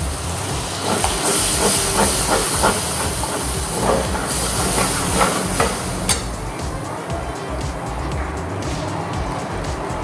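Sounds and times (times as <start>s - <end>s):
paste sizzling in hot oil: 0.0s - 6.6s.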